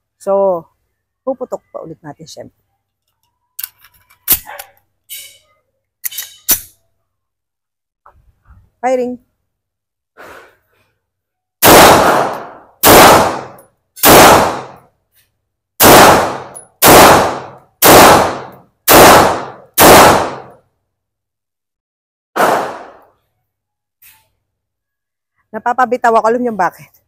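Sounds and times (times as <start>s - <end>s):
pistol shots: 11.6s - 14.8s, 15.8s - 20.5s, 22.4s - 23.0s.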